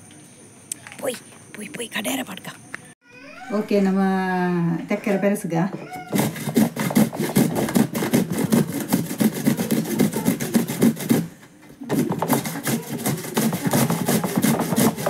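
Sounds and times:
cucumber rasping on a grater: 6.0 - 11.3, 11.9 - 15.0.

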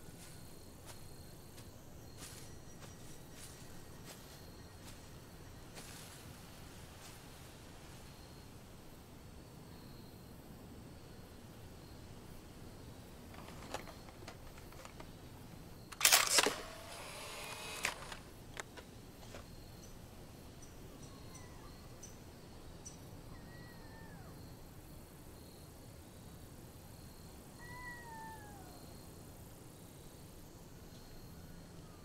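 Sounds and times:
small clicks: 13.3 - 15.2, 15.9 - 19.5
camera shutter snapping: 15.9 - 18.7
camera motor whirring: 16.0 - 18.3.

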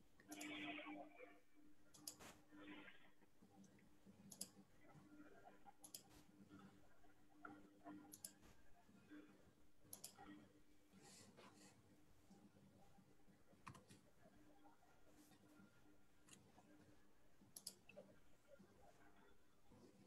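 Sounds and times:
faint steady hum: 0.0 - 20.0
computer mouse clicks: 0.2 - 0.7, 1.9 - 2.8, 3.6 - 6.8, 7.4 - 11.6, 13.6 - 14.7, 16.2 - 20.0.

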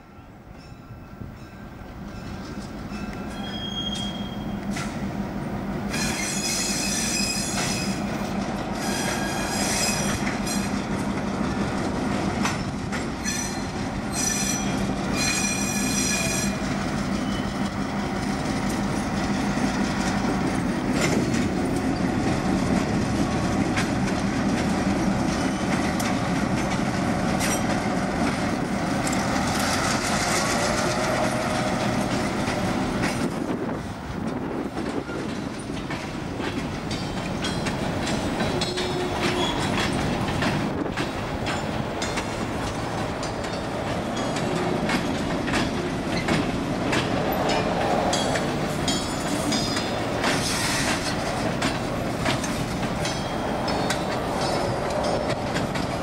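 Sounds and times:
clicking train wheels: 1.8 - 56.0
wheel squeal: 3.1 - 4.6, 5.9 - 8.1, 8.8 - 10.7, 13.2 - 16.6, 17.2 - 17.6, 38.6 - 40.0
freight cars rumbling past: 16.6 - 56.0
wind buffeting microphone: 16.6 - 56.0
locomotive horn blasts: 38.5 - 39.6.

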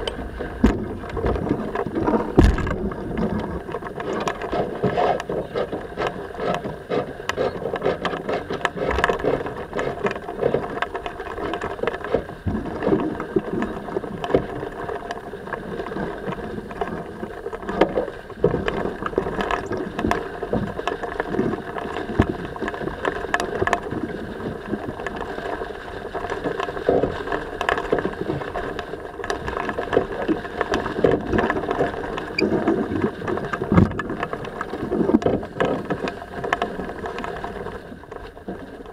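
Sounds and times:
rigging clicks and knocks: 0.0 - 15.2, 26.4 - 38.9
water noise: 0.0 - 38.9
wind: 0.0 - 38.9.

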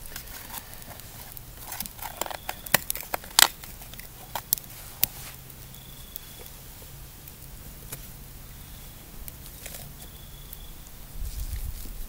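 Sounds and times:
metal tin clicks and crackles: 0.0 - 5.1.

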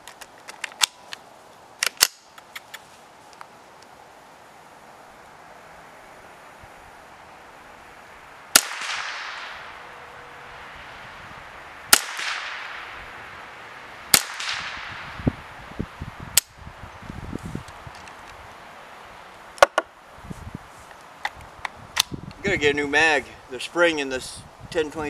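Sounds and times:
rifle shots with echo: 8.6 - 9.6, 11.9 - 12.9, 14.1 - 15.0.

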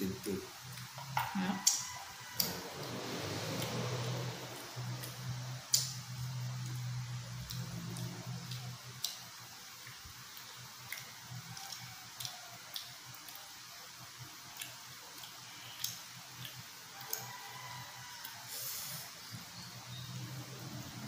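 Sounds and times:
chewing and wet mouth clicks: 0.7 - 1.0, 1.6 - 1.8, 2.4 - 13.6, 14.5 - 17.4.

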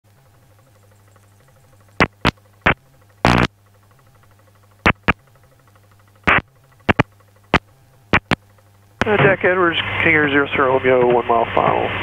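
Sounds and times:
faint radio hum: 2.0 - 3.5, 6.3 - 8.4, 9.0 - 12.0
radio static crackles: 2.0 - 3.6, 4.8 - 5.2, 6.2 - 10.2.

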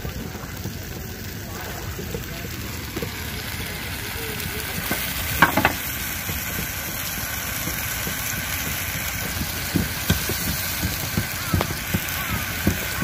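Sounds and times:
onions sizzling in a pot: 0.0 - 13.0
spoon knocking against pot: 5.4 - 5.9.

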